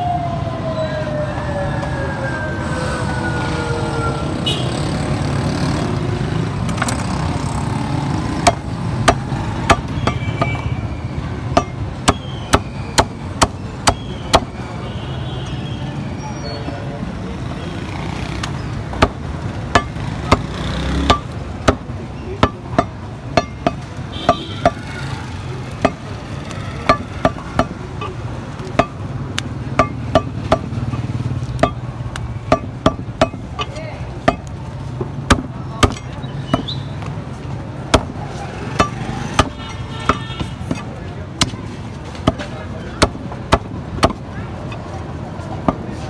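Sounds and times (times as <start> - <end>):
cleaver chopping meat and bone: 8.0 - 10.6, 11.5 - 14.5, 18.4 - 25.0, 25.7 - 26.1, 26.8 - 36.8, 37.8 - 44.3, 45.6 - 46.0.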